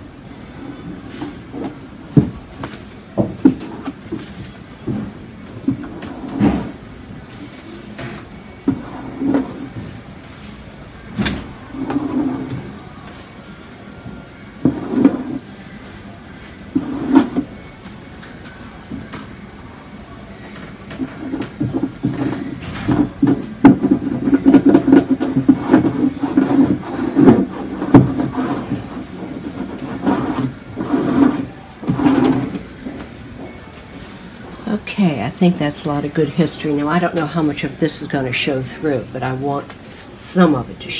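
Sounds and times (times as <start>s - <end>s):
rubbing and scraping on painted panel: 14.6s - 15.4s, 16.7s - 17.5s, 21.0s - 34.9s.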